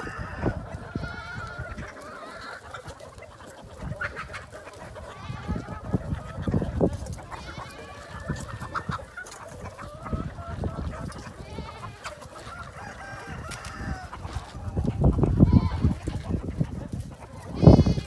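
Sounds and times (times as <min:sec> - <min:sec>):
chickens clucking: 0:00.0 - 0:18.0
roosters crowing: 0:00.0 - 0:18.0.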